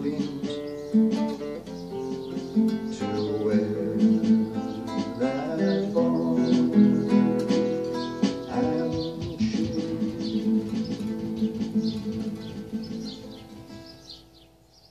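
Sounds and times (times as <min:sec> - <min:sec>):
acoustic guitar melody: 0:00.0 - 0:14.9
electronic hand percussion taps: 0:07.4 - 0:13.2.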